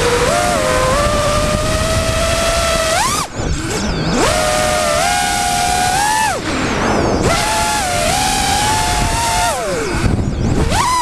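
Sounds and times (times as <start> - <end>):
drone motors whining: 0.0 - 11.0
wind rushing: 5.6 - 10.7.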